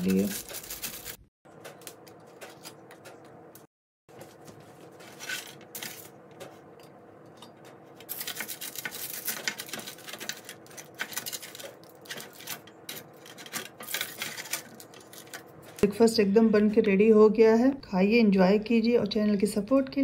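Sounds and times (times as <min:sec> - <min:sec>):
aluminium foil crinkling: 0:00.0 - 0:03.3, 0:04.2 - 0:06.4, 0:08.0 - 0:15.8.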